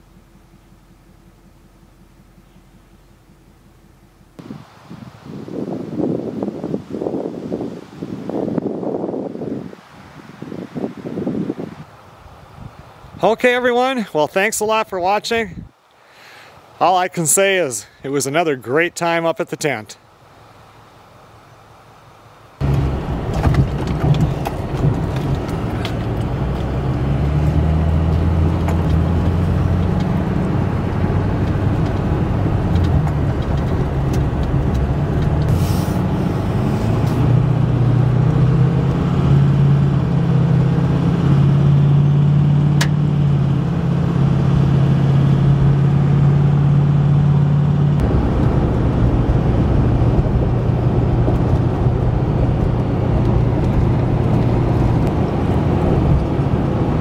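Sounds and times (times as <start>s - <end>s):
engine hum: 0.0s - 8.7s, 20.0s - 57.0s
tyre and road noise: 19.9s - 57.0s.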